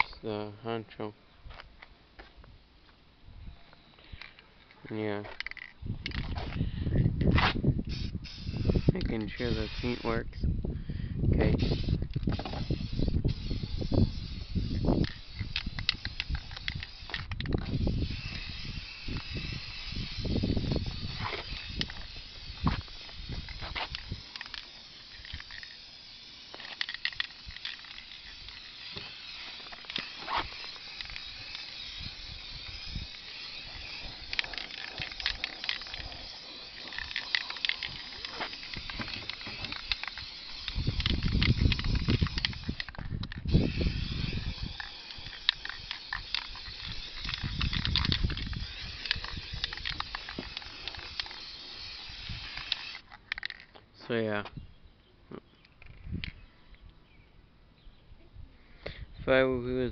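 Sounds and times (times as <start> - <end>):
aerosol spray paint hissing: 7.9 - 10.2, 11.5 - 53.0.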